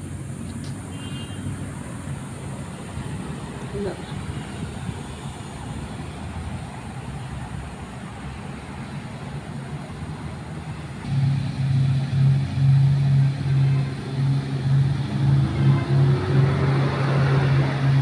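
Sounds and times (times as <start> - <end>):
boat engine humming: 0.0 - 18.0
faint rising tone: 11.0 - 18.0.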